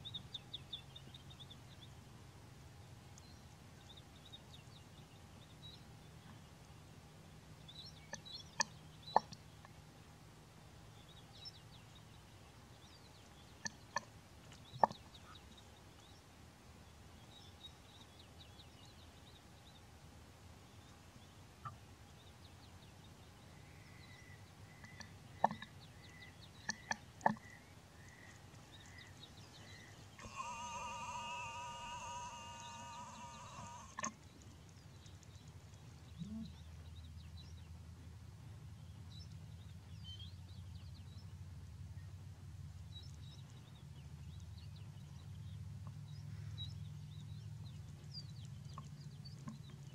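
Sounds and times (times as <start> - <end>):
faint bird chirps: 21.6 - 37.6
harsh rasping call: 30.2 - 34.2.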